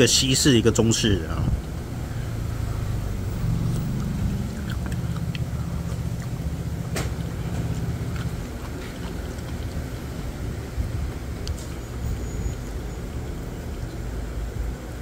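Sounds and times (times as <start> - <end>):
low motor hum: 1.4 - 15.0
utensils clicking while eating: 3.8 - 10.3.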